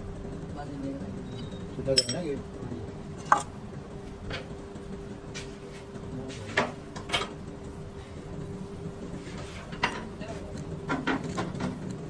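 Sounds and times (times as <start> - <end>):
metal clinks and knocks: 1.9 - 2.4.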